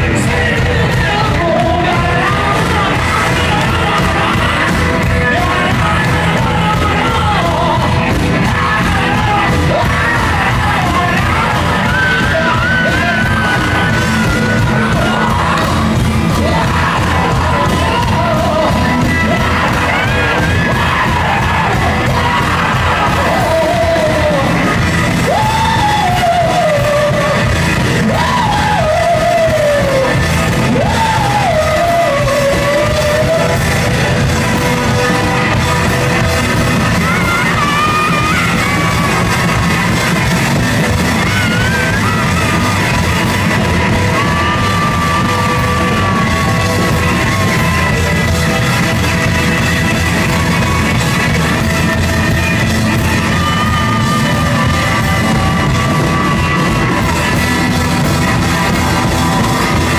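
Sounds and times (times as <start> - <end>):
live rock band with singer: 0.0 - 59.9.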